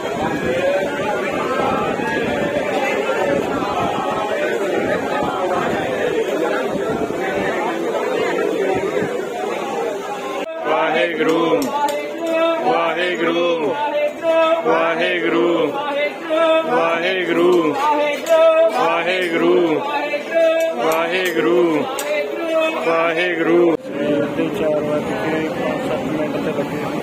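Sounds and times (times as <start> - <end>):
men singing a devotional hymn: 0.0 - 8.3, 10.4 - 25.5.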